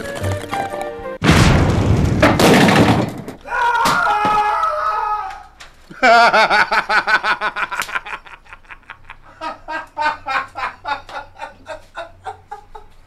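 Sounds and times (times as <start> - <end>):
man laughing hard: 5.9 - 13.0.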